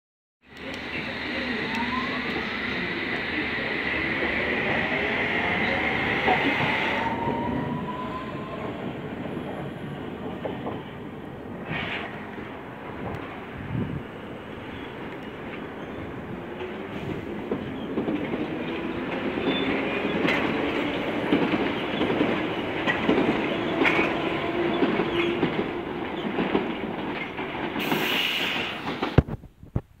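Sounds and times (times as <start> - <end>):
train rumble: 0.5 - 29.8
hiss: 11.6 - 12.2, 27.8 - 29.1.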